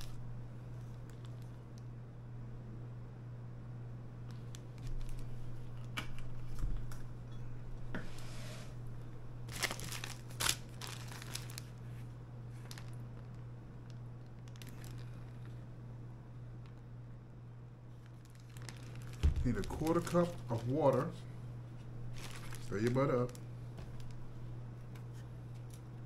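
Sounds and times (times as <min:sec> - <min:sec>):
low electrical hum: 0:00.0 - 0:26.0
plastic bag crinkling: 0:04.3 - 0:06.6, 0:09.5 - 0:15.6, 0:17.9 - 0:21.2, 0:22.0 - 0:26.0.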